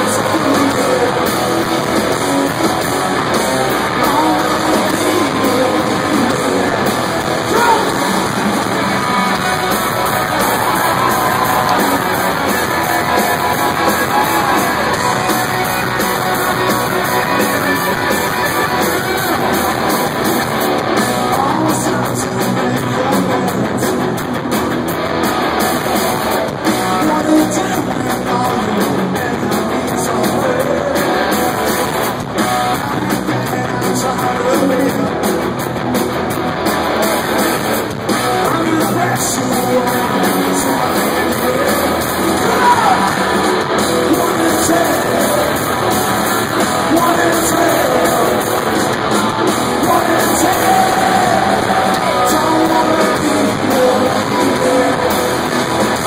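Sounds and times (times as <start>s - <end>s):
person singing: 0.0s - 2.6s, 3.6s - 19.7s, 21.0s - 23.9s, 38.3s - 48.8s, 49.6s - 56.0s
drums: 0.0s - 56.0s
electric guitars: 0.0s - 56.0s.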